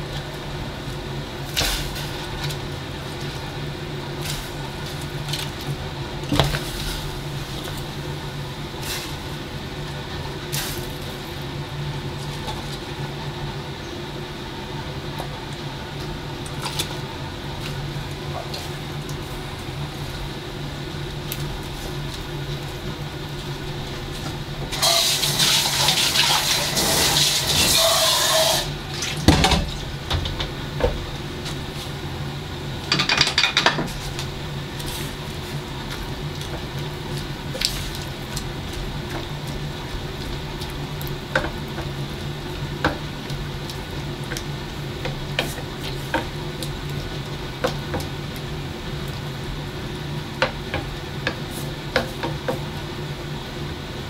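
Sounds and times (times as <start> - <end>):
steady low hum: 0.0 - 26.0, 26.6 - 54.0
water pouring into a pot: 24.7 - 29.2.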